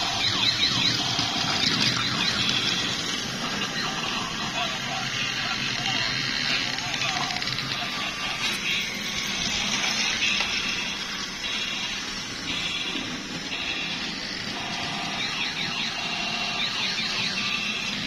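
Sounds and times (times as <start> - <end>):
toy robot alarm-like tones: 0.0 - 18.0.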